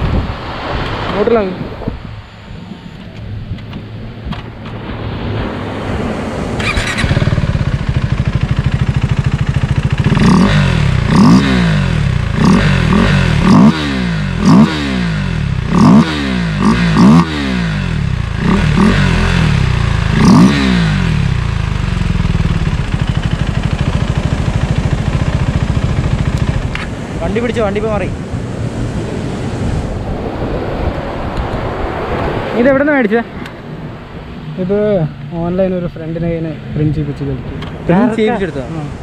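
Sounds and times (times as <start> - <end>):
motorcycle engine revving: 4.5 - 30.0.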